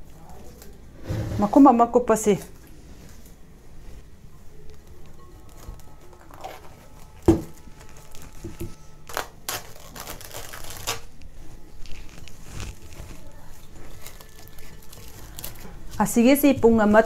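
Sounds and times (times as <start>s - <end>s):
cling film crinkling and tearing: 4.6s - 16.1s.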